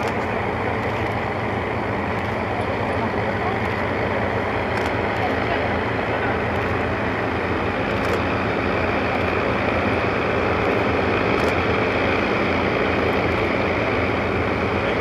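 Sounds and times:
aircraft piston engines droning: 0.0s - 15.0s.

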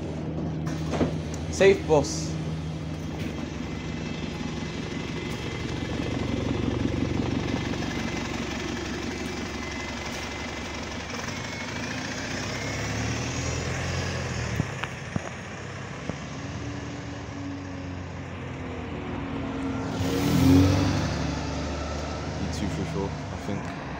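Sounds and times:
bus engine accelerating: 0.0s - 23.9s.

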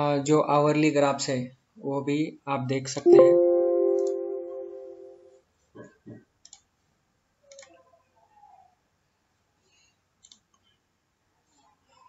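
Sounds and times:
computer mouse clicks: 6.4s - 6.7s, 7.5s - 7.8s, 10.2s - 10.7s.

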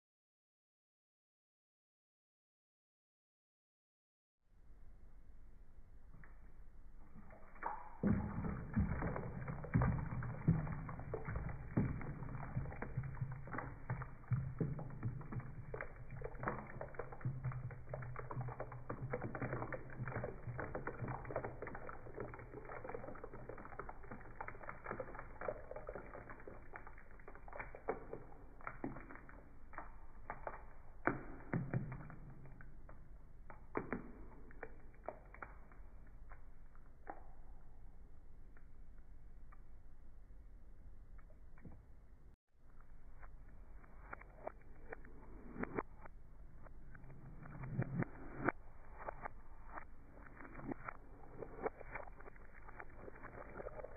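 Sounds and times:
thick liquid pouring into metal bowl: 6.8s - 37.4s, 46.8s - 53.9s
liquid glugging and splashing: 7.2s - 36.3s, 44.0s - 53.9s.

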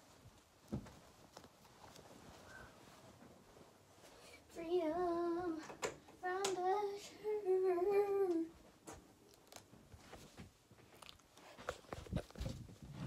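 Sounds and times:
faint clicks and handling noise: 0.0s - 4.2s, 5.4s - 6.8s, 8.2s - 13.0s
rustling: 0.0s - 5.6s, 8.0s - 13.0s
girl singing: 4.3s - 8.7s.

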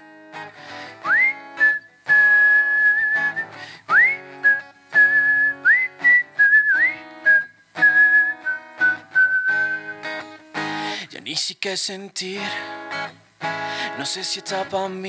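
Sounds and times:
strummed acoustic guitar: 0.0s - 15.0s
man whistling a tune: 1.0s - 10.2s.

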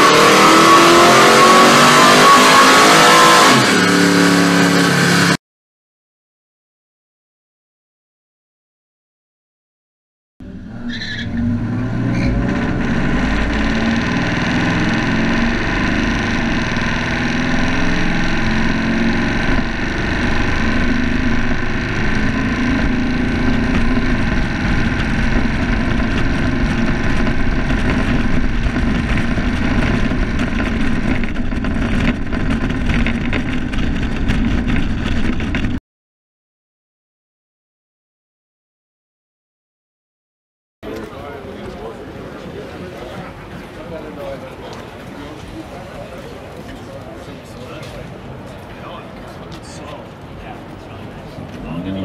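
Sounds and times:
road noise: 0.0s - 5.4s, 10.4s - 35.8s, 40.8s - 52.0s
car engine running under load: 10.4s - 35.8s.

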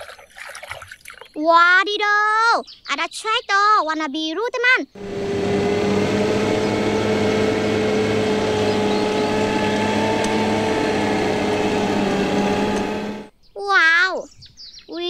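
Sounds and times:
tractor diesel engine running: 5.0s - 13.3s.

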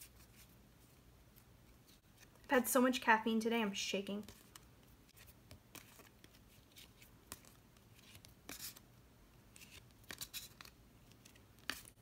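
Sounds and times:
cards being flipped: 4.3s - 8.8s, 9.5s - 12.0s.

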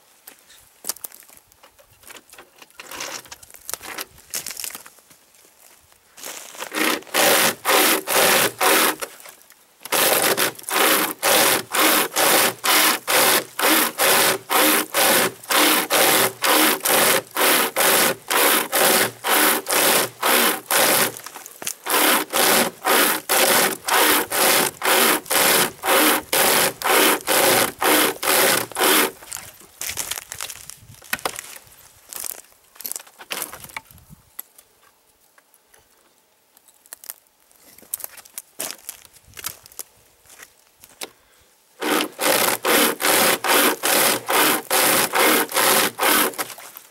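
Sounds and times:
hand chain saw rasping through log: 6.6s - 9.2s, 9.8s - 29.4s, 41.8s - 46.7s.

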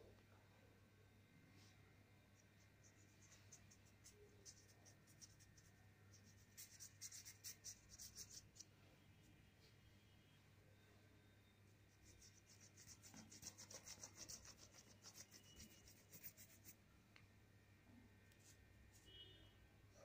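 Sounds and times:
paintbrush scratchy strokes: 2.6s - 8.6s, 11.9s - 16.8s.

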